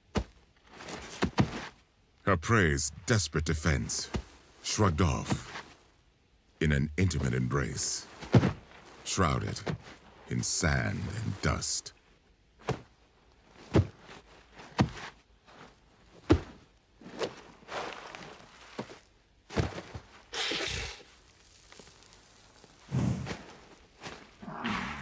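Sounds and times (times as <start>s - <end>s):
dull thuds and scuffles in sand: 0.0s - 1.8s, 3.7s - 5.9s, 7.1s - 10.2s, 12.6s - 24.4s.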